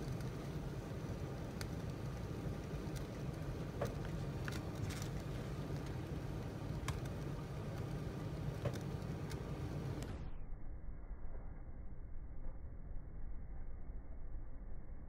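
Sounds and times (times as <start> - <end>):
sharp fire crackle: 0.0 - 10.2
wood fire burning: 0.0 - 10.3.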